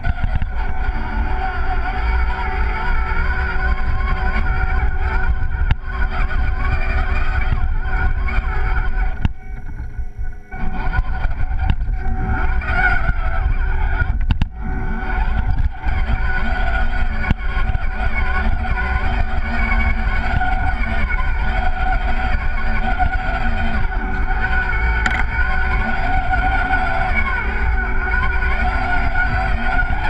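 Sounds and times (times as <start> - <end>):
rc truck motor whining: 0.0 - 30.0
chassis knocking: 25.0 - 25.4.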